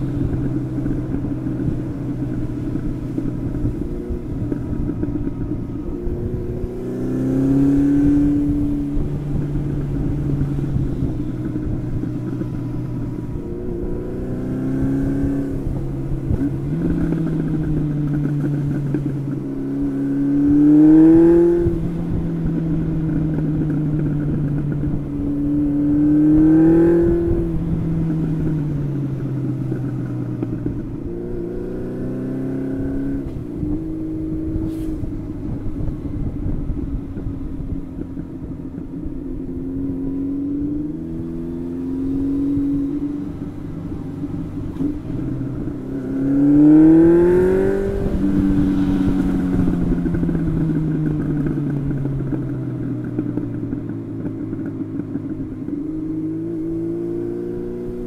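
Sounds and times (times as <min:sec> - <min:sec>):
motorcycle engine accelerating: 0:00.0 - 0:58.0.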